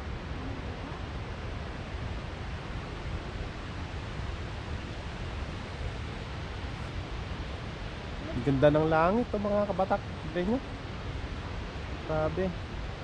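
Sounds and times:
outdoor rushing hiss: 1.8s - 13.0s.

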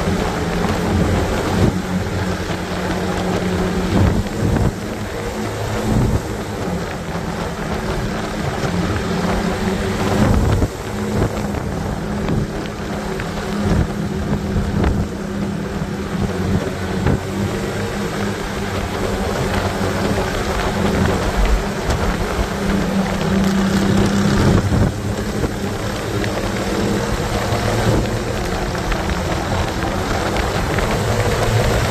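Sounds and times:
motorcycle engine cruising: 0.0s - 31.9s
wind buffeting microphone: 0.0s - 31.9s.

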